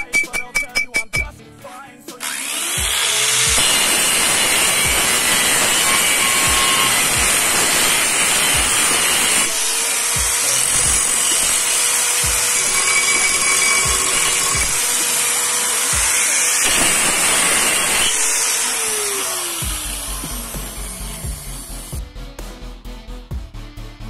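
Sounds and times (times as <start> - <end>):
music beat: 0.0 - 3.6, 5.9 - 7.8, 10.0 - 14.9, 15.9 - 16.2, 19.6 - 23.8
angle grinder grinding steel: 2.2 - 22.0.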